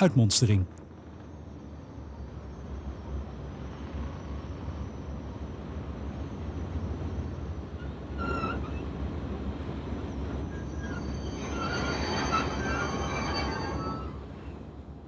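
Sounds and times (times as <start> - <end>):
locomotive engine and rail rumble: 0.0 - 15.0
thin high wheel squeals: 7.7 - 9.1, 10.0 - 14.7.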